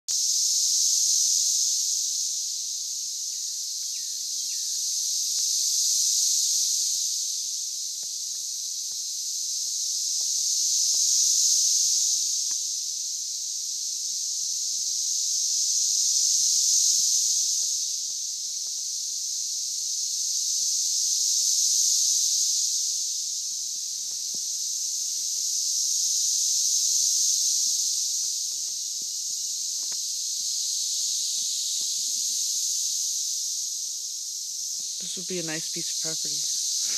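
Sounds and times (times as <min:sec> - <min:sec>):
cicadas chorus hissing: 0:00.1 - 0:36.9.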